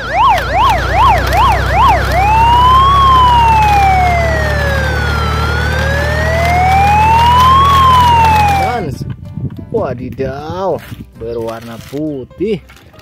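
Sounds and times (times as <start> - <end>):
toy electronic siren: 0.0 - 8.9.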